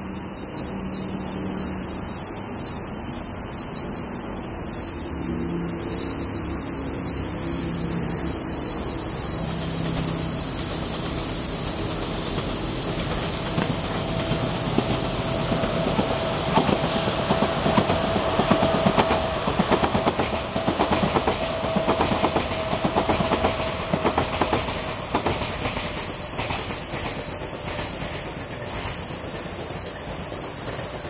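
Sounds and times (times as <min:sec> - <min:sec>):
electric train passing: 0:00.0 - 0:31.0
insects droning: 0:00.0 - 0:31.0
wheels clicking over rail joints: 0:07.6 - 0:31.0.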